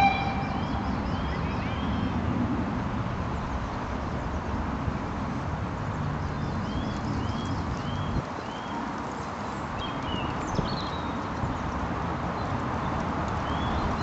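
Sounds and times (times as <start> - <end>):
bird chirping: 0.0 - 2.1.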